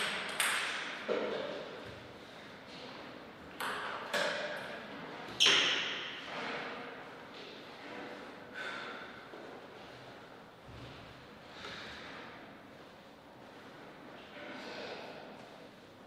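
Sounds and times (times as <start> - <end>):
sharp knocks in a large hall: 0.0 - 9.7.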